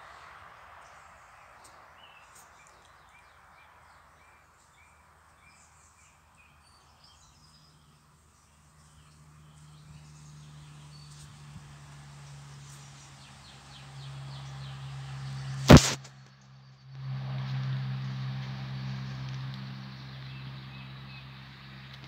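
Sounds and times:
small birds chirping: 0:00.0 - 0:15.8.

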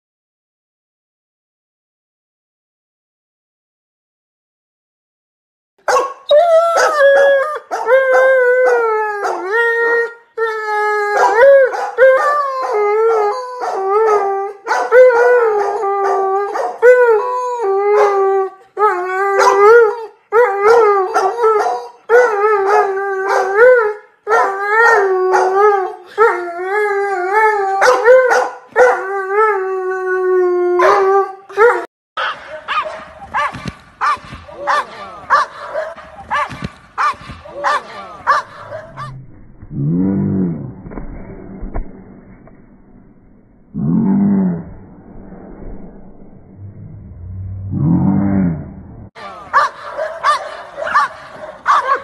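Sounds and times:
dog howling: 0:05.9 - 0:31.9, 0:37.6 - 0:39.2.

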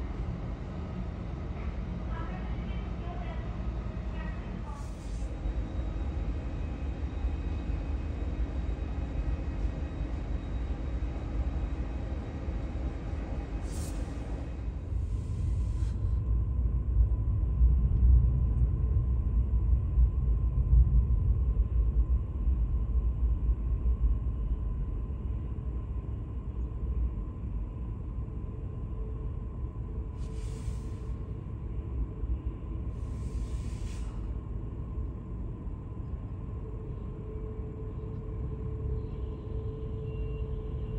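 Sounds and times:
faint high whine: 0:00.0 - 0:16.4, 0:24.2 - 0:40.9.

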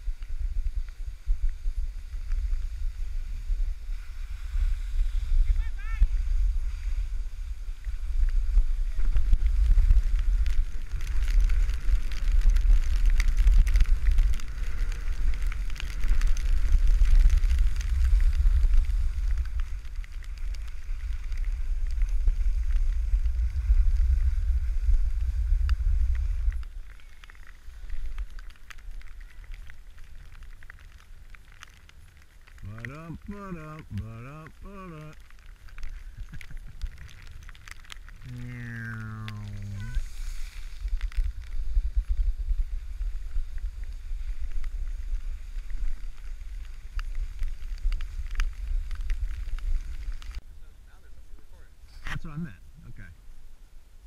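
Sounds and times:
wind buffeting microphone: 0:00.0 - 0:26.8
skis scraping over snow: 0:00.0 - 0:50.4
faint hiss: 0:00.0 - 0:54.0.

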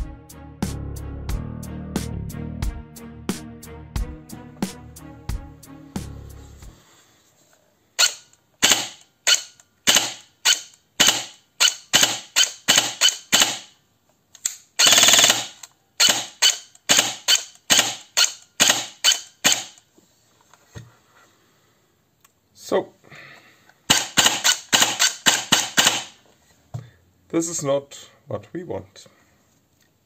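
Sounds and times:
airsoft gun rapid fire burst: 0:08.0 - 0:09.0, 0:14.8 - 0:18.0, 0:23.9 - 0:26.2
airsoft gun single shots: 0:08.0 - 0:13.7, 0:14.8 - 0:19.8, 0:23.9 - 0:26.2.

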